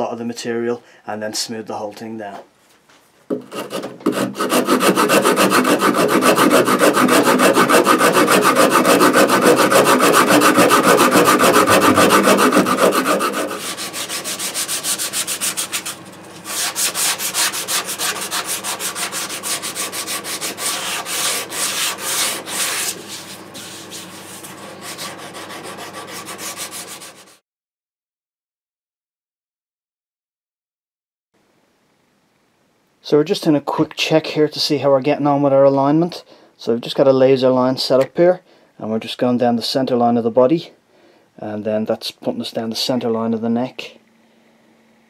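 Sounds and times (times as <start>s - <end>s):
hand sanding: 3.3s - 27.4s
saw rasp scraping wood: 3.3s - 27.4s.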